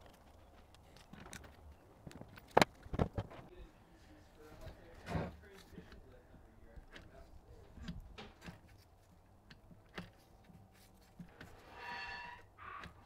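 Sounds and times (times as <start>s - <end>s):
faint mechanical clicks and knocks: 4.6s - 11.6s.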